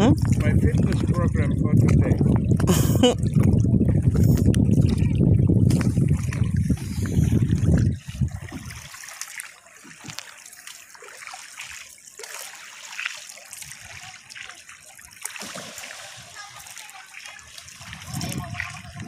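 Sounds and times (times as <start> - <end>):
low rumble on microphone: 0.0 - 8.8
small splashes: 0.0 - 19.0
water trickling and dripping: 0.0 - 19.0.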